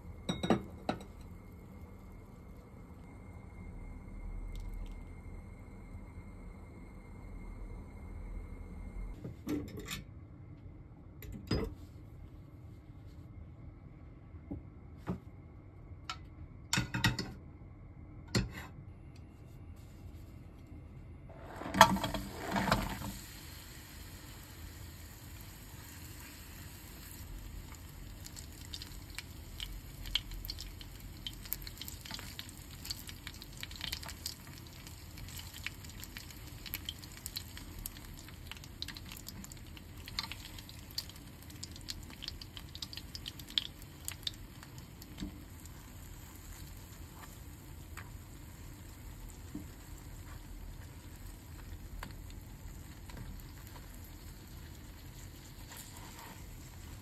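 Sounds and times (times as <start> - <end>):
food sizzling in oil: 21.6 - 57.0.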